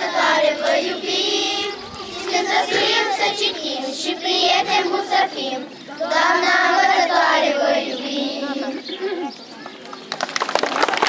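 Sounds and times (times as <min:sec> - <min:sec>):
children singing: 0:00.0 - 0:08.8.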